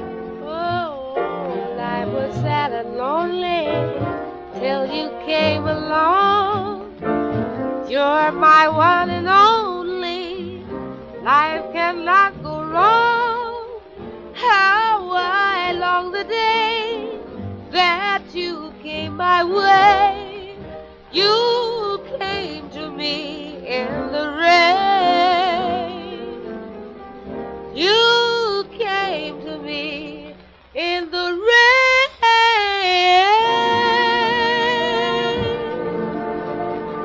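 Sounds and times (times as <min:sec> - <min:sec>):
orchestral accompaniment: 0:00.0 - 0:30.7, 0:33.2 - 0:37.0
woman singing a ballad: 0:00.4 - 0:07.0, 0:07.9 - 0:13.8, 0:14.4 - 0:20.6, 0:21.2 - 0:26.5, 0:27.8 - 0:35.9.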